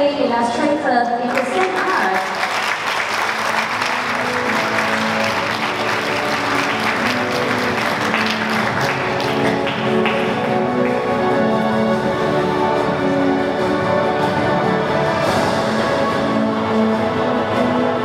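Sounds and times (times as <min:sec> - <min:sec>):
background music: 0:00.0 - 0:18.0
audience applauding: 0:01.3 - 0:11.4.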